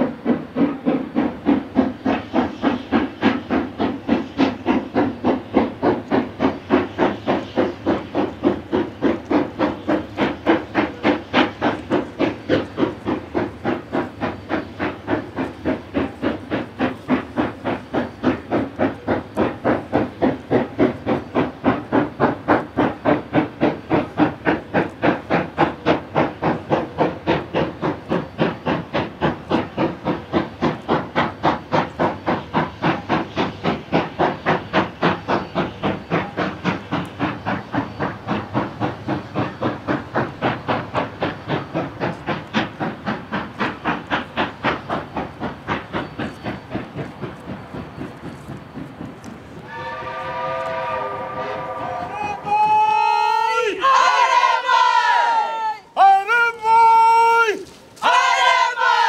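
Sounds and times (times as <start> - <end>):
steam hiss: 0.0 - 59.0
steam locomotives chuffing: 0.0 - 59.0.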